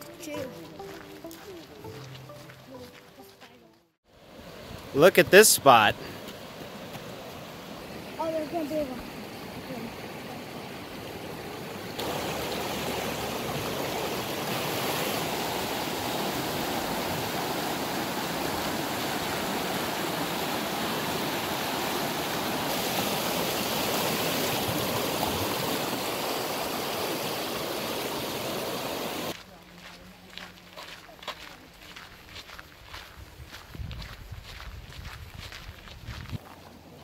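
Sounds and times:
creek rushing over rocks: 4.1 - 29.4.

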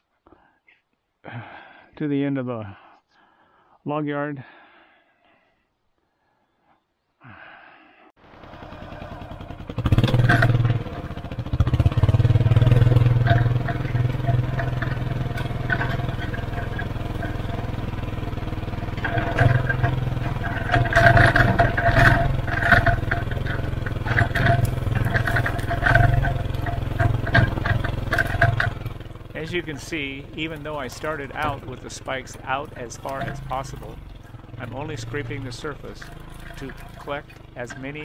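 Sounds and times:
utility vehicle engine under load: 8.2 - 38.0
blade knocking and rattling: 8.6 - 38.0.

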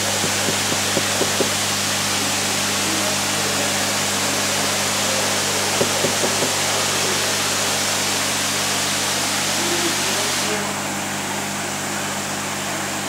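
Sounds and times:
low pump hum: 0.0 - 1.9.

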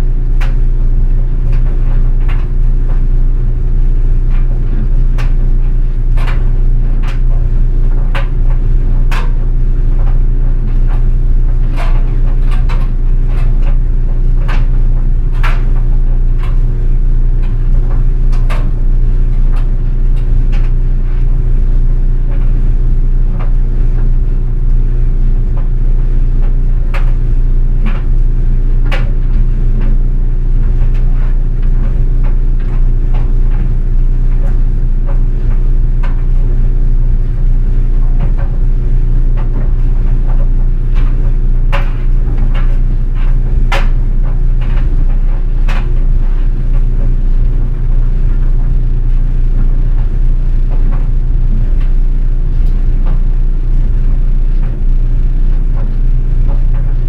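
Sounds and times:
clothes dryer humming: 0.0 - 57.0.

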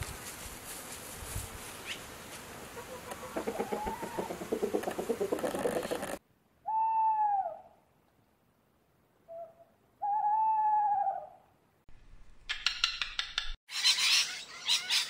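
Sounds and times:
hens clucking: 2.7 - 6.2
owl hooting: 2.8 - 7.8, 9.3 - 11.4.

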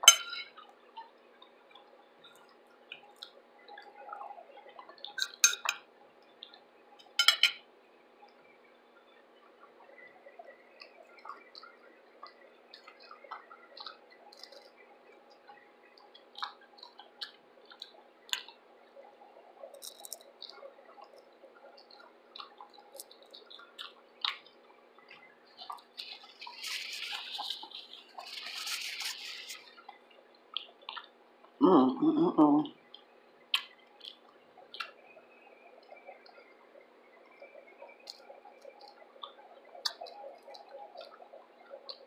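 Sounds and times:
wet chewing and mouth smacks: 0.5 - 5.4, 10.8 - 18.6, 19.6 - 31.6, 32.9 - 35.0, 37.5 - 42.0
paper napkin rustling: 26.4 - 29.6.

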